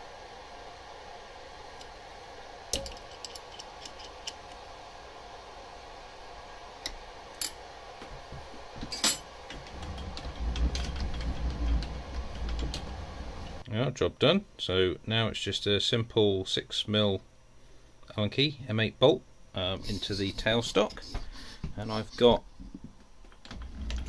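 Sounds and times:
steady faint hum: 0.0s - 24.0s
low rumble: 9.6s - 13.6s.

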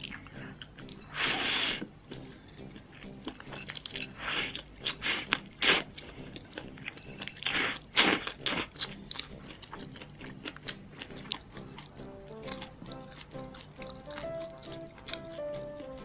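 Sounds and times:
chewing: 0.0s - 16.0s
slurping noodles: 4.0s - 6.8s, 7.4s - 9.0s.

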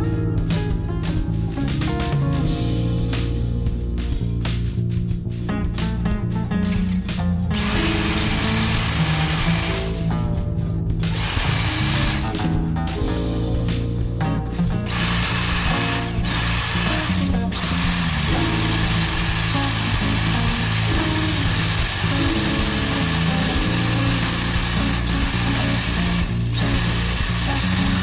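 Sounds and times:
background music: 0.0s - 28.0s
power tool whining: 7.0s - 10.2s, 11.1s - 12.4s, 14.9s - 28.0s.

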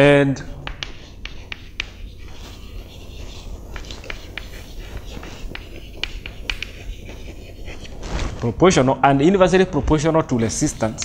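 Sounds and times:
chalk writing on blackboard: 0.4s - 8.1s, 10.1s - 11.0s.

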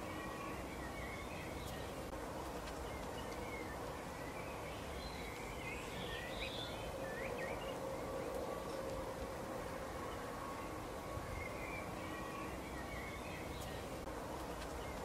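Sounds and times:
finches twittering: 0.0s - 14.1s
faint hum: 0.0s - 15.0s.

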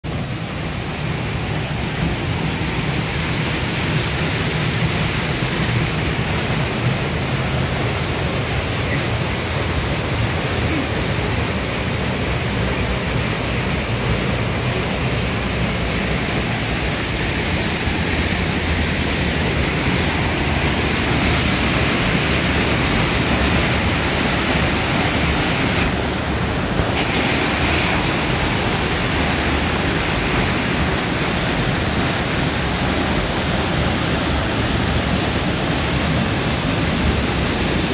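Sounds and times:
waterfall rushing: 0.0s - 37.9s.

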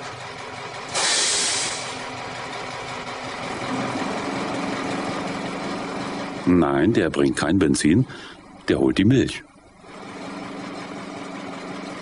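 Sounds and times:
truck engine running: 0.0s - 12.0s
loud air hiss: 0.9s - 2.0s.

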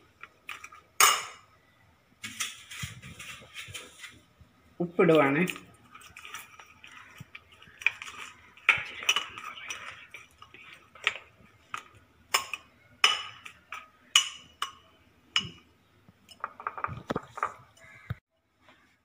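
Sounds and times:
spoon scraping glass bowl: 5.8s - 13.8s.

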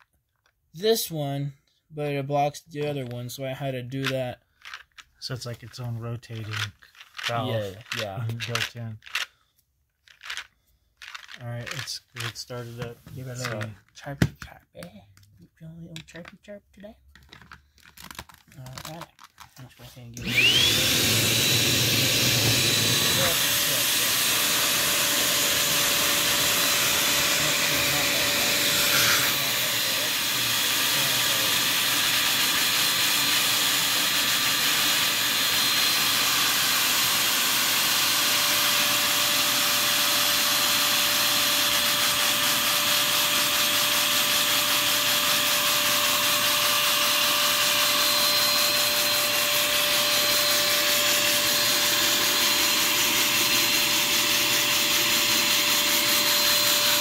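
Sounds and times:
vacuum cleaner running: 7.2s - 8.6s, 12.6s - 13.7s, 20.2s - 57.0s.

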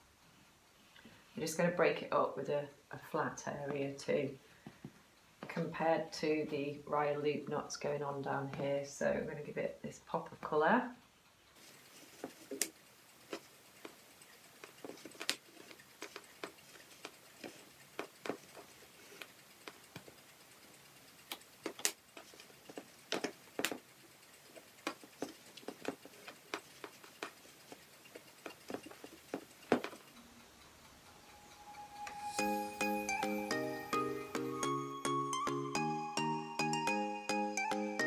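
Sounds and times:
faint clicks and taps: 11.2s - 30.3s
fabric rustling: 11.6s - 30.2s.

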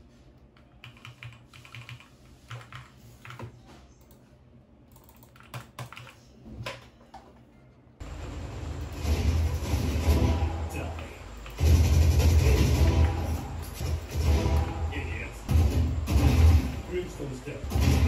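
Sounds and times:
keyboard typing clicks: 0.8s - 3.5s, 4.9s - 6.2s
loud full sound: 8.0s - 18.0s.

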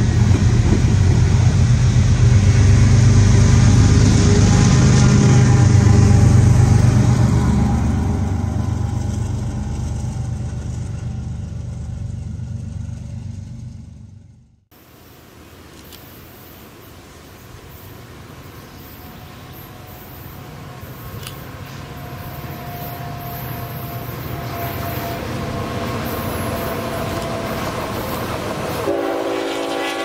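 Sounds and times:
diesel locomotive engine running: 0.0s - 14.7s, 19.5s - 30.0s
steady hiss: 14.7s - 25.4s.

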